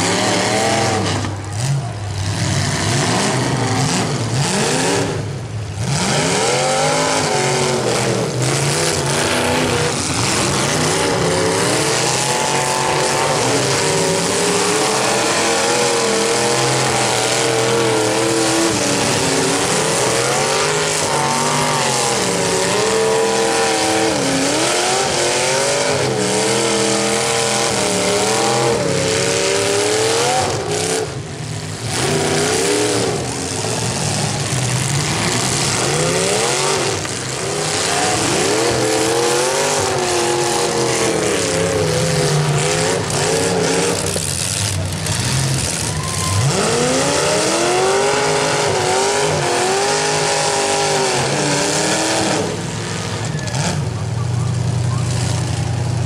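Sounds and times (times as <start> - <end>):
car engines revving: 0.0 - 56.0.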